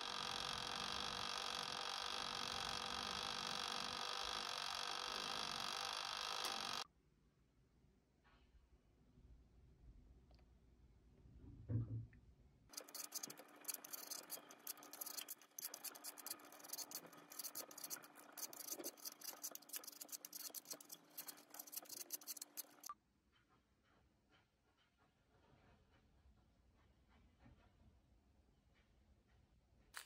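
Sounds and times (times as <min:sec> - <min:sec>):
vegetable peeler scraping apple: 0:00.0 - 0:06.8, 0:12.7 - 0:22.9.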